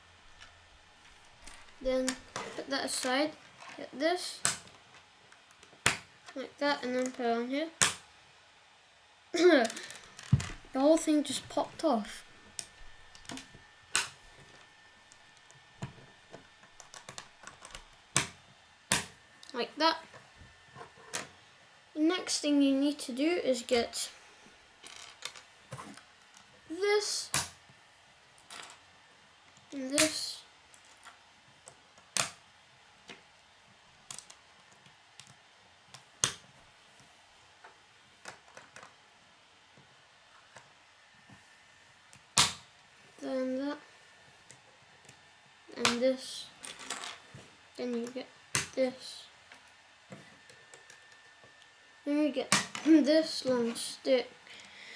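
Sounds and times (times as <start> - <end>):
plastic pieces clicking: 16.7 - 18.3.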